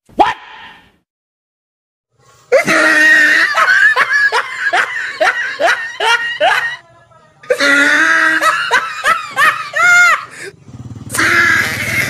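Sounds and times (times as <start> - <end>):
shrill high-pitched laughter: 2.5 - 10.4, 11.1 - 12.0.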